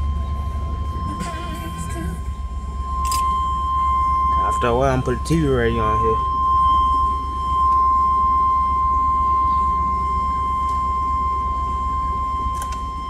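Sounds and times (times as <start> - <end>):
engine idling rumble: 0.0 - 13.0
high-pitched tone: 0.0 - 13.0.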